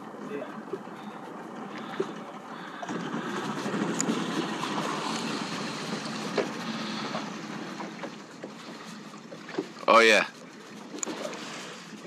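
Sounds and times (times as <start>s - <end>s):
water rushing around a boat: 0.0s - 12.0s
wind: 0.0s - 12.0s.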